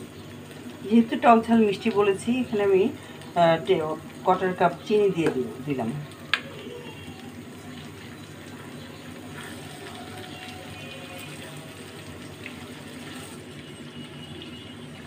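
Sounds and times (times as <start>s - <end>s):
pickle bubbling in hot oil: 0.0s - 15.0s
spatula scraping pan: 12.8s - 13.5s.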